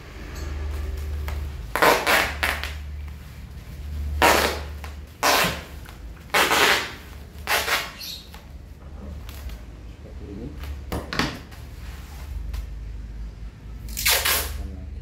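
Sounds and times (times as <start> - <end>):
packing tape tearing off roll: 1.2 - 3.2, 4.1 - 8.5, 13.9 - 14.6.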